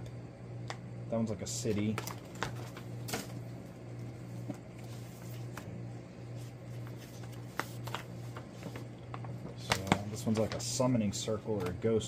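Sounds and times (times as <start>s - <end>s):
steady low hum: 0.0s - 12.0s
paper maps rustling: 4.8s - 10.9s.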